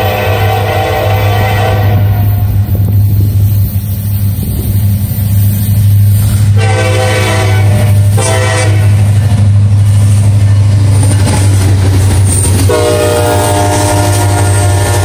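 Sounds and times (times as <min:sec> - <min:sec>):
train air horn blasts: 0:00.0 - 0:02.7, 0:06.4 - 0:09.2, 0:12.7 - 0:15.0
locomotive low rumble: 0:00.0 - 0:15.0.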